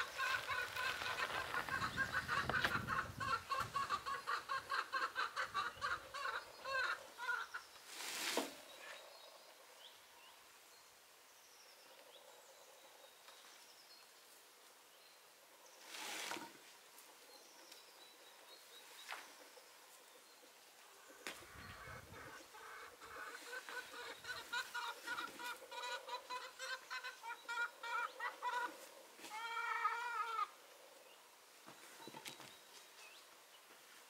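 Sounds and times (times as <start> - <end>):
chicken clucking: 0.0 - 7.6, 21.0 - 30.5
rustle: 0.0 - 34.0.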